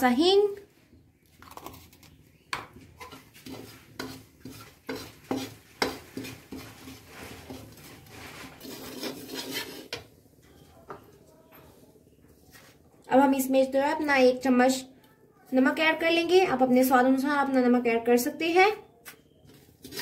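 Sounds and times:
spices roasting in oil: 1.6 - 10.1.

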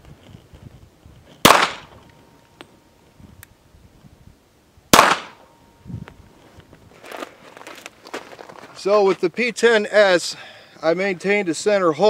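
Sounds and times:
gunshot echo: 1.4 - 2.0, 4.9 - 5.5
pistol shots: 1.4 - 2.0, 4.9 - 5.5.

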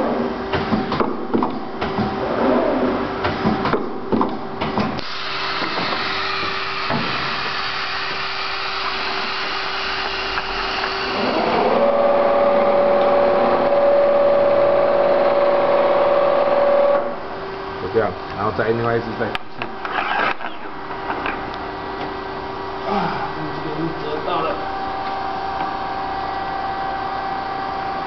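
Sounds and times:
mechanical hum with hiss: 0.0 - 28.0
motor whine: 5.0 - 17.6.

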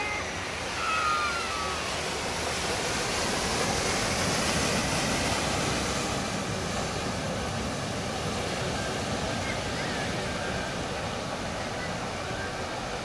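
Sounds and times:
floodwater rushing and splashing: 0.0 - 13.0.

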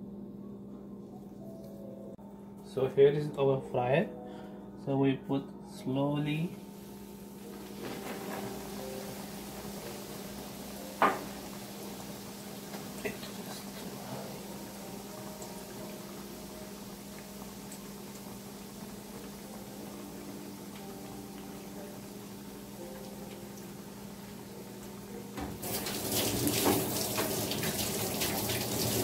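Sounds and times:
low steady hum: 0.0 - 25.6
oil sizzling and bubbling: 6.7 - 29.0.

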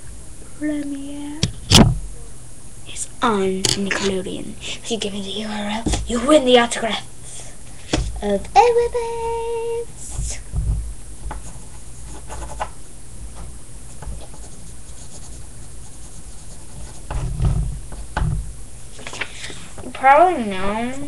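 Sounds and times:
pen scratching on paper: 11.4 - 12.7, 13.9 - 17.2.

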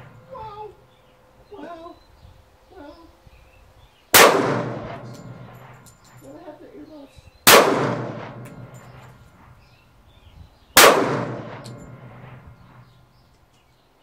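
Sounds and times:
pistol shots echoing: 4.1 - 5.9, 7.4 - 9.3, 10.8 - 12.8.

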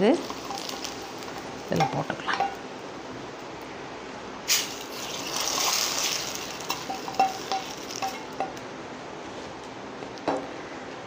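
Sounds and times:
hot oil sizzling: 0.0 - 3.5, 4.4 - 8.8.

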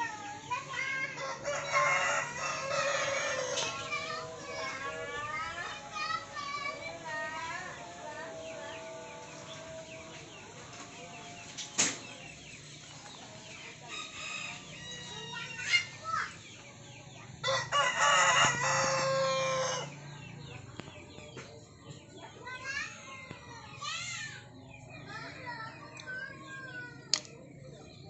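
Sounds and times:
rooster crowing: 1.2 - 5.0, 13.9 - 15.6, 17.4 - 20.0.

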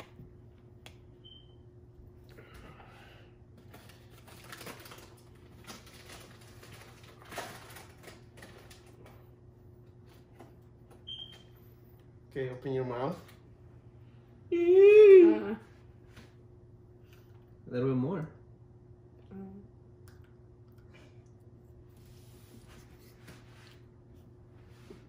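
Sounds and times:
plastic bag rustling: 3.7 - 8.9.

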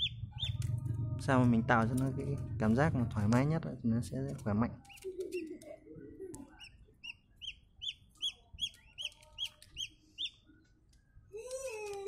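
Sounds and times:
chicks peeping: 0.0 - 1.0, 4.5 - 5.6, 6.2 - 10.5.

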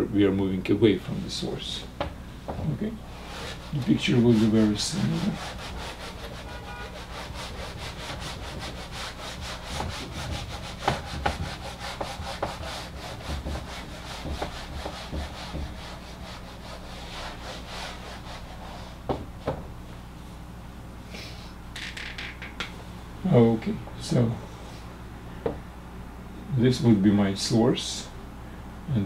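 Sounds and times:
eraser rubbing whiteboard: 3.1 - 19.6.

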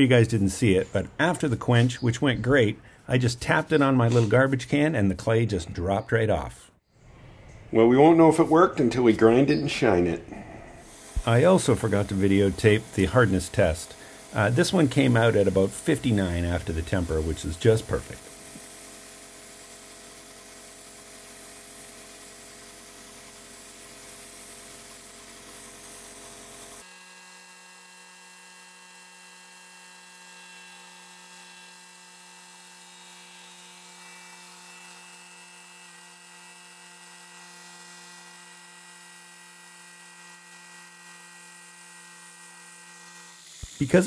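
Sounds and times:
belt grinder whining: 10.8 - 44.0.

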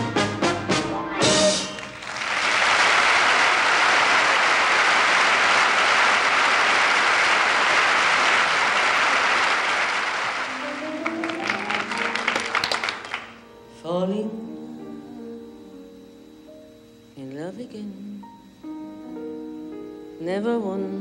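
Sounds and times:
orchestra playing chords: 0.0 - 2.2, 10.2 - 13.7
audience applauding: 1.5 - 13.5.

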